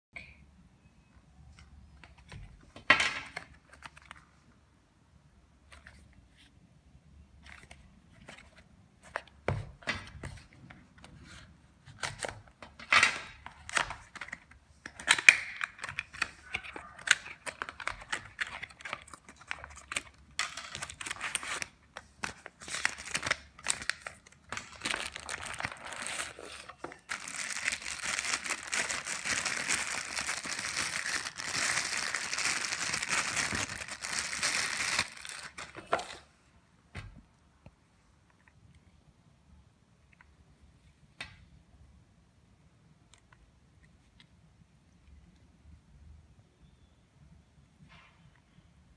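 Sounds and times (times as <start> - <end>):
plastic bag crinkling: 17.2 - 36.2.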